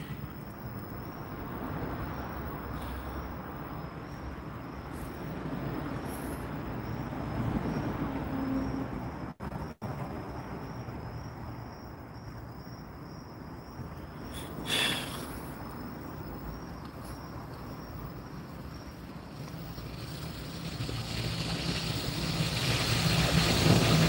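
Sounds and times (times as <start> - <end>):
high-pitched cricket trill: 0.0 - 24.0
background hiss: 13.8 - 24.0.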